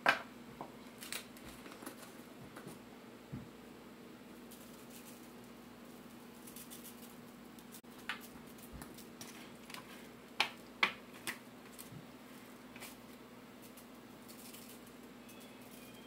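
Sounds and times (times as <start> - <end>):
foil crinkles and taps: 0.6 - 2.8, 7.6 - 12.1.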